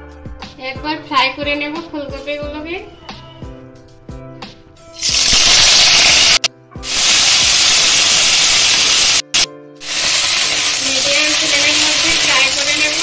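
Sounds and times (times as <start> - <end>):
cauliflower sizzling in hot oil: 5.0 - 13.0.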